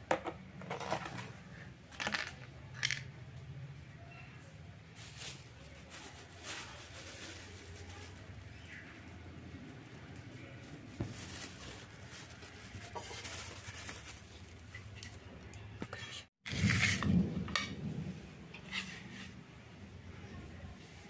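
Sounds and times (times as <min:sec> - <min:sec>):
plastic bag rustling: 0:04.9 - 0:15.2.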